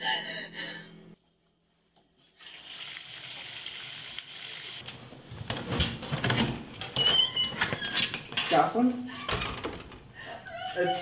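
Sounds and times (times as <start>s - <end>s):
faucet water running into tub: 2.4s - 4.8s.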